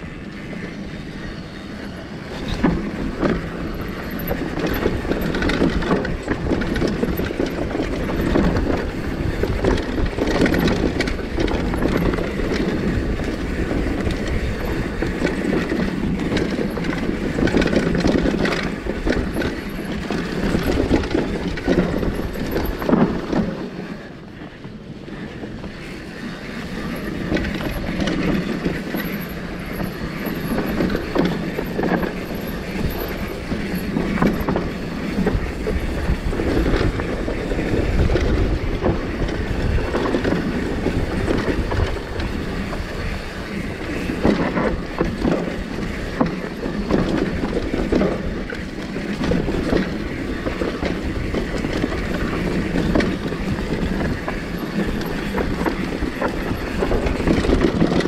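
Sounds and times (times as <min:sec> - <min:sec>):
tyres rolling over dirt: 0:00.0 - 0:58.0
wind buffeting microphone: 0:00.0 - 0:58.0
bike chain and frame rattling: 0:00.6 - 0:23.8, 0:25.4 - 0:58.0.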